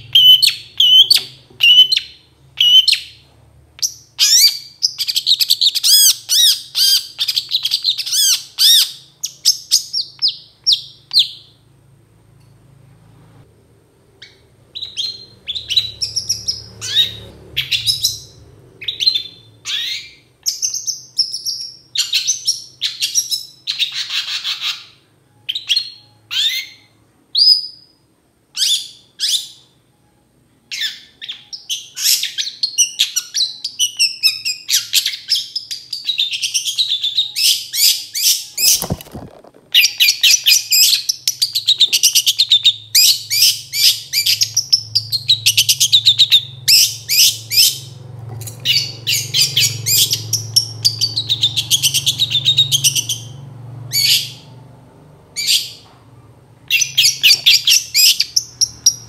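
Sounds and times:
bird call notes and chattering song: 0:00.0 - 0:03.2.

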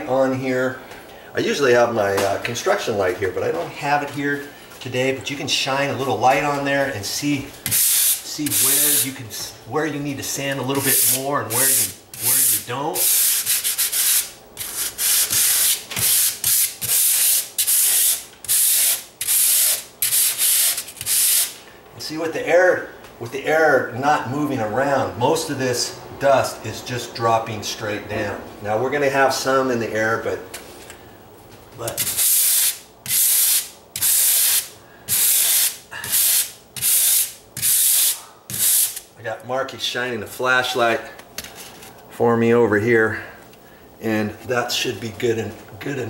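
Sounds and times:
sandpaper sanding drywall: 0:07.6 - 0:09.2, 0:10.7 - 0:21.6, 0:31.9 - 0:39.0.

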